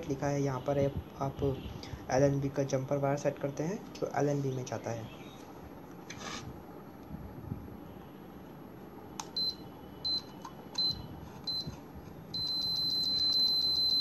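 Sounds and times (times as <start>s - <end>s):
continuous buzzer tone: 12.3s - 14.0s
short high beeps: 12.4s - 14.0s.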